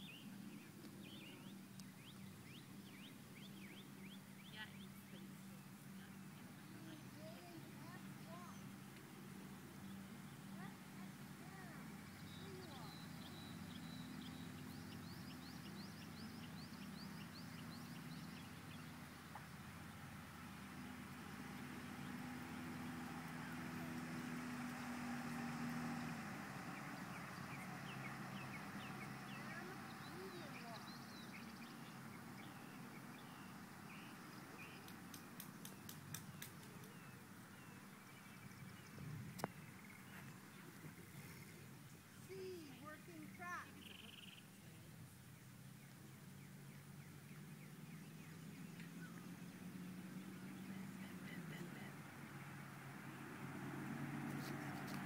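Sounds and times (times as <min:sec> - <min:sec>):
low engine-like hum: 0:00.0 - 0:55.0
outdoor background hiss: 0:00.0 - 0:55.0
faint bird chirps: 0:11.6 - 0:19.9.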